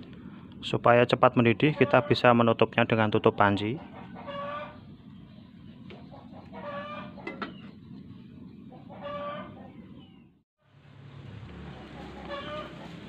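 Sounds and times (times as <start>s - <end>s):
chicken calling: 1.6s - 2.3s, 3.7s - 5.0s, 5.9s - 7.6s, 8.6s - 10.2s, 11.7s - 13.0s.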